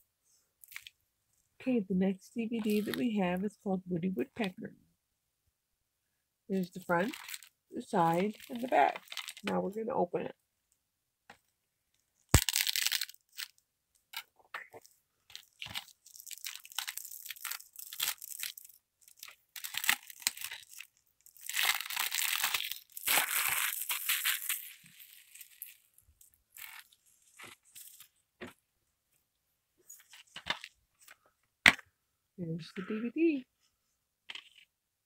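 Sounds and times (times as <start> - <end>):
cellophane crinkling and tearing: 0.6 - 0.9, 2.6 - 3.0, 6.7 - 9.5, 12.3 - 28.2, 29.9 - 31.2.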